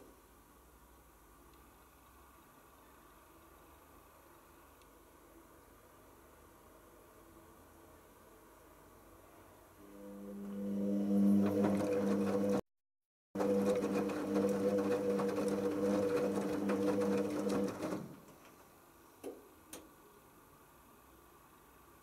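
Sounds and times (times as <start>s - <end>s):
washing machine drum humming: 10.2s - 12.6s, 13.4s - 18.4s.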